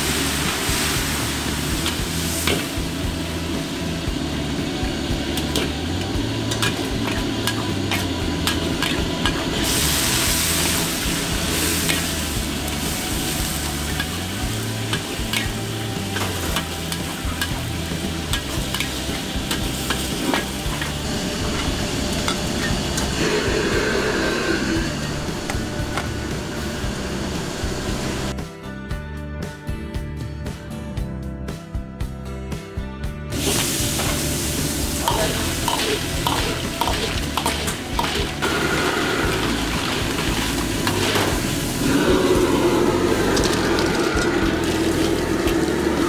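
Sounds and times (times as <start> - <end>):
oil sizzling: 0.0 - 28.3, 33.3 - 46.0
metal spatula scraping a wok: 11.5 - 12.2, 35.0 - 41.8.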